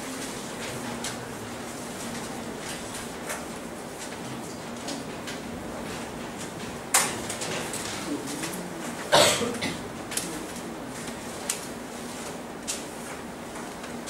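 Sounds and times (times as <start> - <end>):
steady room hum: 0.0 - 14.0
person coughing: 9.1 - 9.8.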